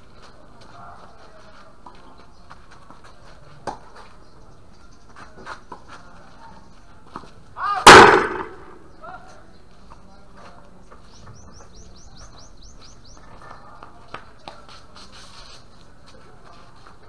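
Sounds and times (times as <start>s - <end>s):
loud burst close to microphone: 7.9s - 8.8s.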